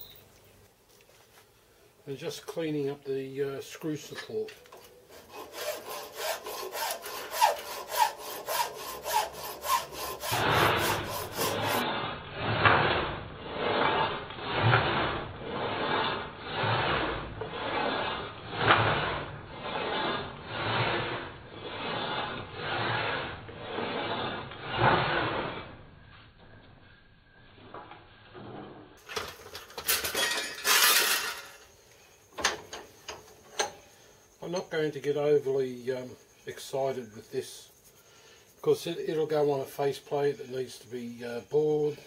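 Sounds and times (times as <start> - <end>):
hand file rasping on metal: 5.0 - 25.6.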